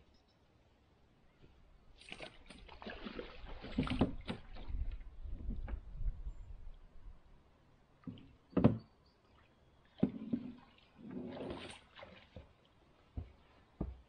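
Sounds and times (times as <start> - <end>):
water splash: 2.0 - 5.0, 10.0 - 12.5.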